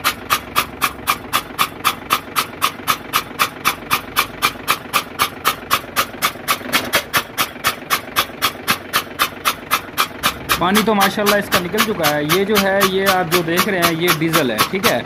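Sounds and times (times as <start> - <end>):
diesel engine running: 0.0 - 15.0
sharp chuffing from injector bore: 0.0 - 15.0.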